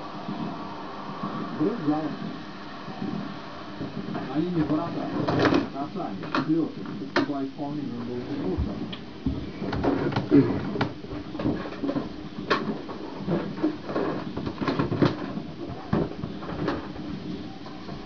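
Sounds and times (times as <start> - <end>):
rubber balloons tapped and rubbed: 8.4 - 18.0.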